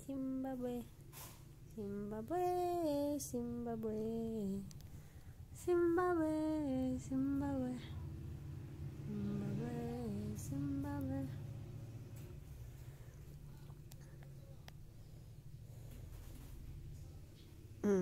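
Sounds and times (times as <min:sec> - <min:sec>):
woman singing slow crooning tune: 0:00.0 - 0:01.0, 0:01.7 - 0:04.8, 0:05.5 - 0:08.2, 0:08.9 - 0:11.6.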